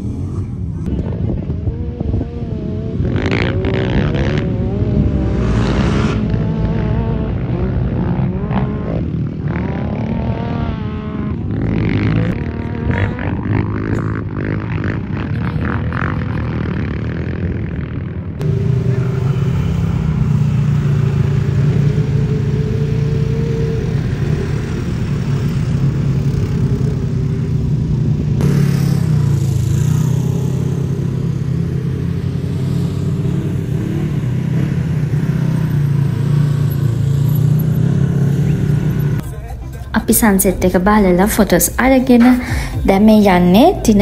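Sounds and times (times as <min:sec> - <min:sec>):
road noise: 0:00.0 - 0:44.0
vehicle engine running: 0:10.9 - 0:44.0.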